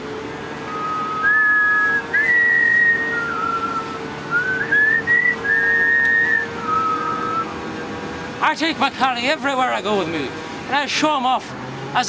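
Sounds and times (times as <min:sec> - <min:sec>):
person whistling to call a dog: 0:00.7 - 0:07.4.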